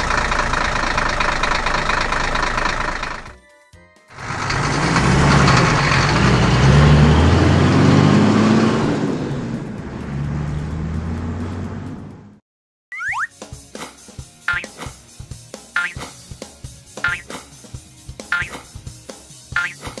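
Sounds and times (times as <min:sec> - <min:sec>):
heavy truck engine passing: 0:00.0 - 0:03.4, 0:04.2 - 0:12.4.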